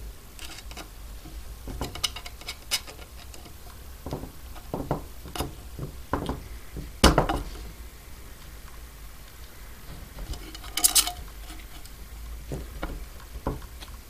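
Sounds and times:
screwdriver clicking in metal nut: 0.4 - 0.9, 1.8 - 3.6
plastic propeller handled: 0.4 - 7.6, 9.9 - 14.0.

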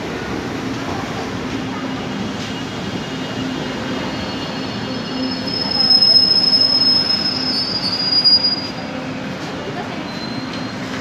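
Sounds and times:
train rumbling past: 0.0 - 11.0
high metallic squeal: 4.1 - 8.9.

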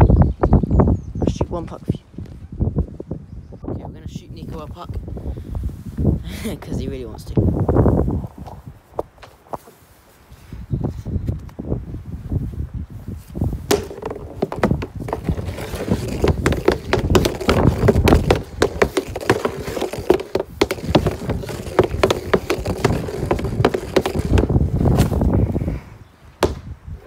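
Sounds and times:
hockey stick hitting puck: 13.7 - 25.1, 26.4 - 26.7.

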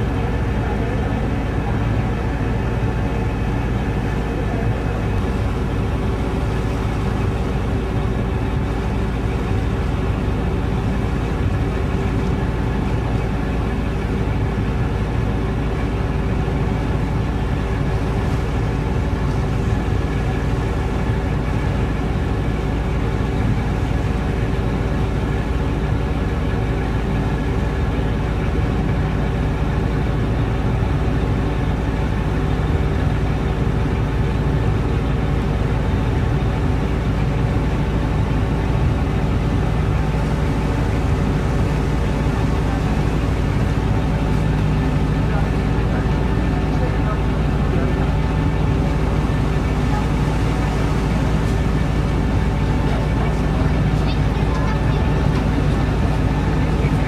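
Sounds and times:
ferry diesel engine drone: 0.0 - 57.0.

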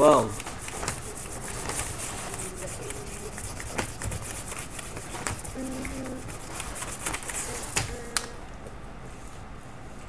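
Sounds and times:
scribbling on paper: 0.0 - 7.8.

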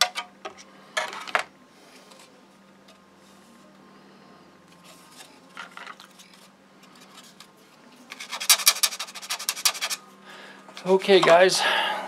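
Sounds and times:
handling plastic model kit: 4.8 - 10.0
rapid scraping on plastic: 8.1 - 10.0.

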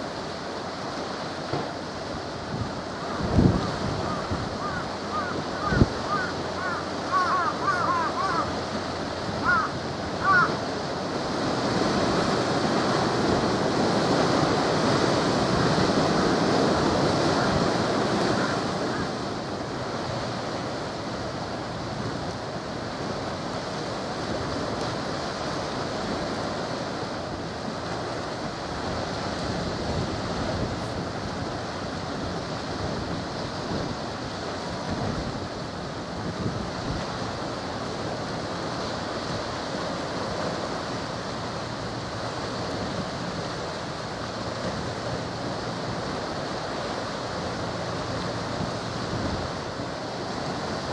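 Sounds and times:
waves on shore: 0.0 - 50.9
wind on microphone: 2.4 - 6.8, 28.8 - 37.5.

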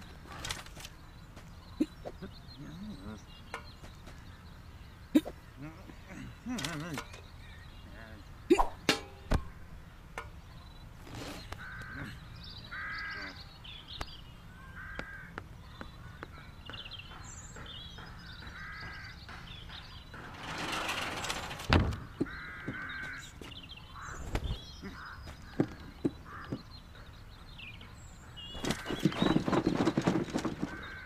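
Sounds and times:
crow-like caws: 11.5 - 13.4, 14.7 - 15.4, 18.4 - 19.2, 22.0 - 26.6.

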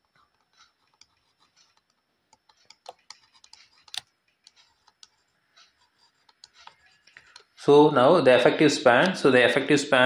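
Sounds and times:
stylus tapping on tablet: 0.4 - 7.6.

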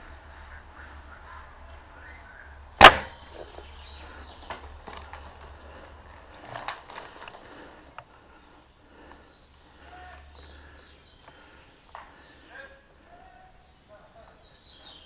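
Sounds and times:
loud sharp crack: 2.8 - 3.3
rustling: 4.5 - 8.1.

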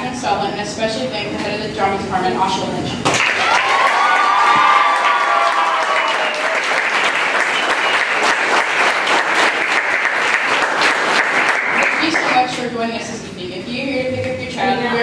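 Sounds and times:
audience applauding: 3.1 - 12.4.

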